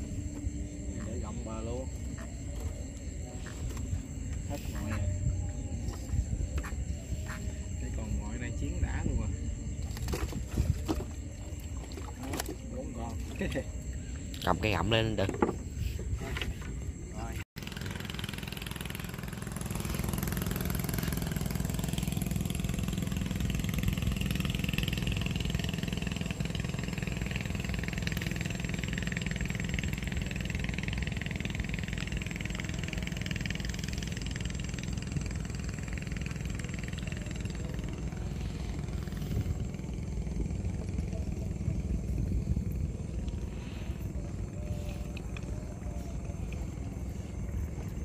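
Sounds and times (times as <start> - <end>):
engine droning: 17.6 - 48.0.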